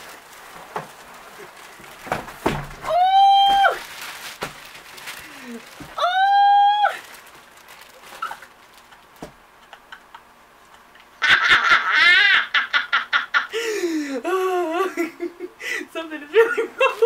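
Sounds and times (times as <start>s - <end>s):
woman laughing loudly: 8.2s - 17.0s.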